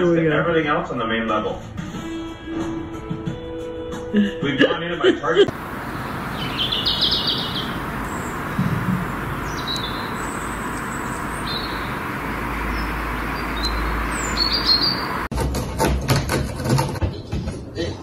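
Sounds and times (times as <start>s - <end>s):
low rumble: 5.5s - 15.3s
small birds chirping: 5.5s - 15.3s
steady outdoor hiss: 5.5s - 15.3s.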